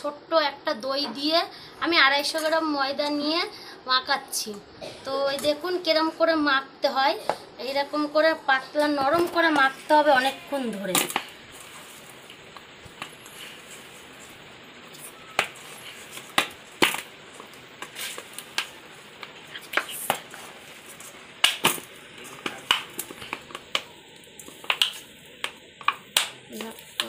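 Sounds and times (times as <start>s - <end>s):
dough being kneaded by hand: 9.0s - 27.0s.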